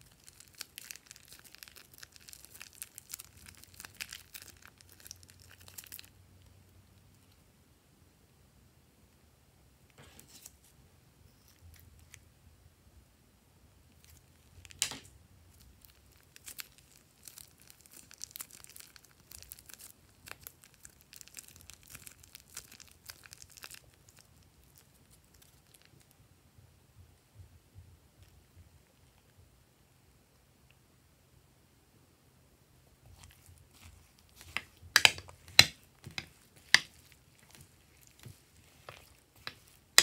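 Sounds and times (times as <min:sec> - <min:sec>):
plastic bag of foam beads crinkling: 0:00.0 - 0:06.5, 0:13.9 - 0:26.1, 0:33.0 - 0:40.0.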